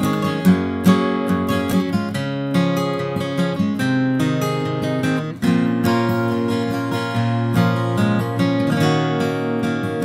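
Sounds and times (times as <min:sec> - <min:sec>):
strummed acoustic guitar: 0:00.0 - 0:10.0.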